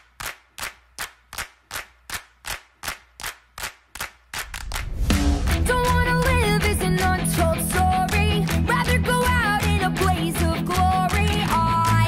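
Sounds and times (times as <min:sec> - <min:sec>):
sharp percussive beat: 0:04.3 - 0:10.1
rock band with guitars: 0:05.5 - 0:12.0.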